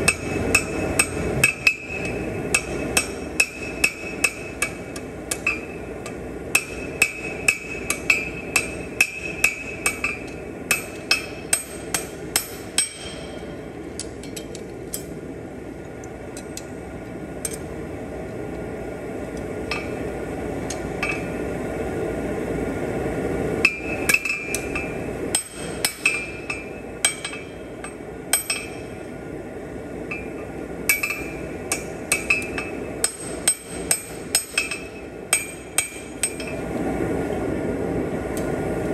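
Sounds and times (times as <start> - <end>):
hammer striking steel on anvil: 0.0 - 14.5, 19.6 - 20.0, 20.7 - 21.4, 23.6 - 29.0, 30.1 - 36.6.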